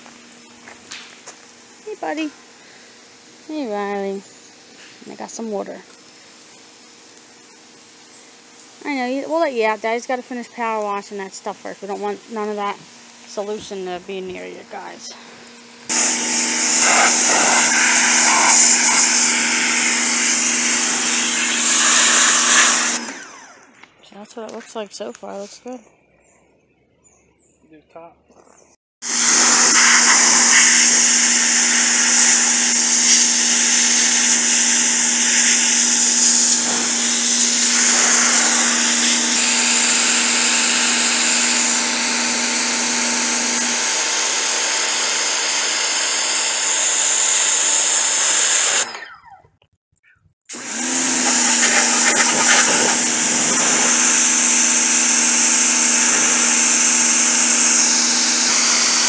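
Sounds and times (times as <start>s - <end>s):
pressure washer motor humming: 10.6s - 23.8s, 29.0s - 49.2s, 50.5s - 59.0s
water jet hissing on wood: 11.8s - 23.0s, 29.0s - 42.8s, 50.8s - 59.0s.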